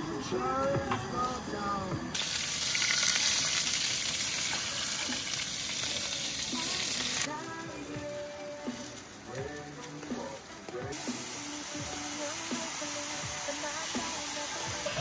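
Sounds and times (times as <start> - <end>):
meat sizzling in frying pan: 2.2 - 7.3, 10.9 - 15.0.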